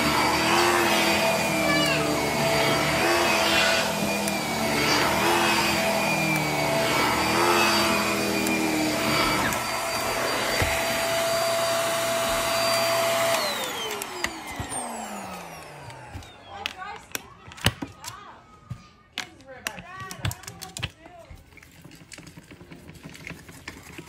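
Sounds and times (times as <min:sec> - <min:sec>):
vacuum motor spinning down: 0:00.0 - 0:16.9
stick vacuum motor whine: 0:00.0 - 0:17.8.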